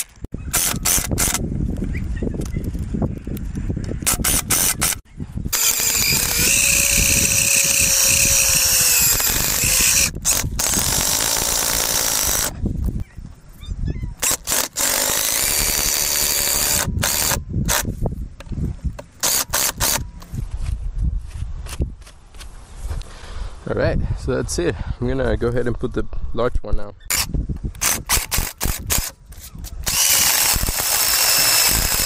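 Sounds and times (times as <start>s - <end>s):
cordless drill driving screws: 0.0s - 1.4s, 4.0s - 12.5s, 14.2s - 17.9s, 19.2s - 20.0s, 27.1s - 32.0s.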